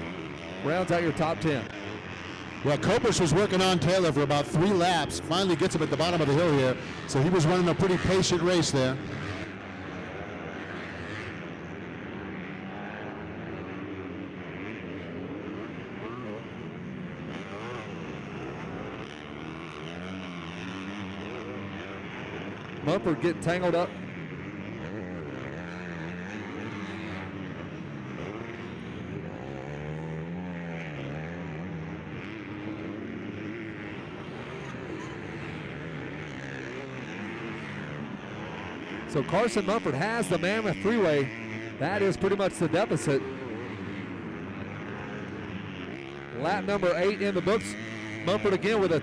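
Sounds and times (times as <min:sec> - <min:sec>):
motocross bike engines revving: 0:00.0 - 0:49.0.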